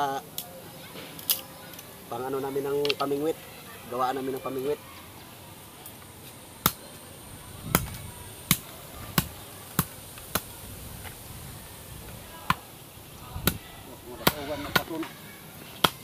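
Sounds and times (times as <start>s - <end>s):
knife chopping cane pole: 14.2s - 15.0s, 15.8s - 16.0s.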